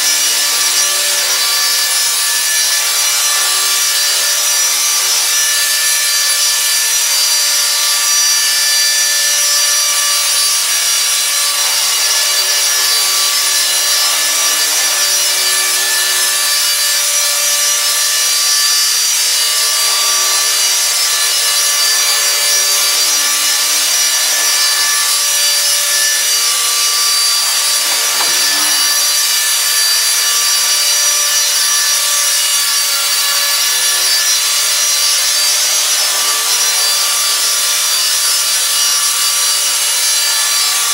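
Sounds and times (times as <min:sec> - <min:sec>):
rc helicopter motor whine: 0:00.0 - 0:40.9.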